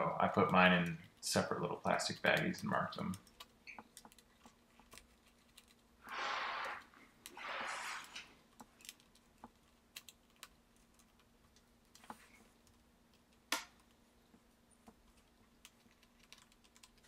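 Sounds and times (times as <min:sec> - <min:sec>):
short rushes of hissing noise: 0:06.0 - 0:08.3.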